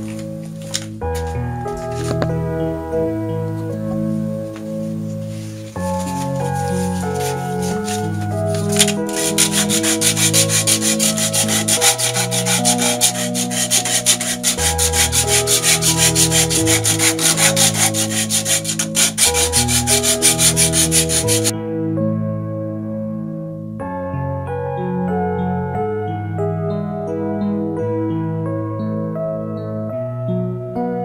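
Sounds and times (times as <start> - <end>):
piano music: 0.0 - 31.0
sanding belt rasping on wood: 5.8 - 21.5.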